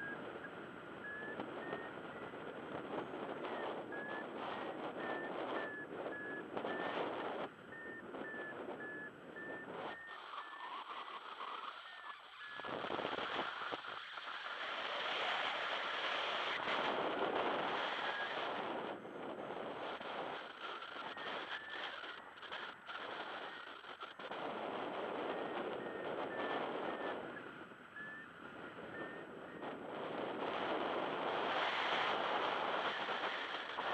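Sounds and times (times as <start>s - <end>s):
variometer beeping: 0.0s - 10.6s, 25.2s - 29.8s
wind noise on microphone: 0.0s - 33.9s.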